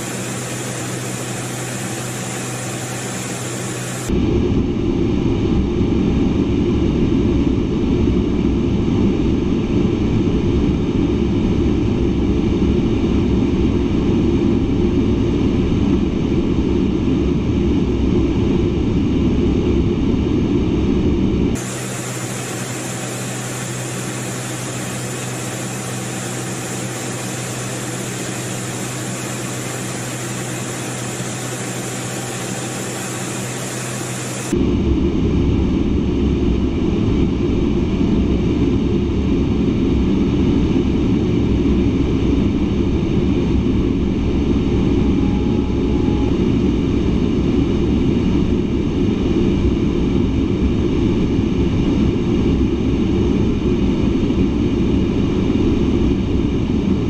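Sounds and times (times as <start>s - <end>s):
rushing air: 0.0s - 4.1s, 21.6s - 34.6s
thin drone with high hiss: 0.0s - 4.1s, 21.6s - 34.5s
jet cockpit engine noise: 0.0s - 57.0s.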